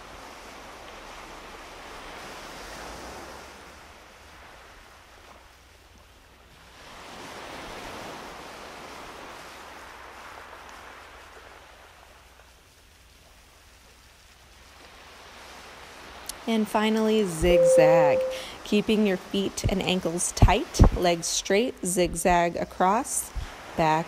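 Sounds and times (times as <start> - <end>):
waves washing onto beach: 0.0 - 24.0.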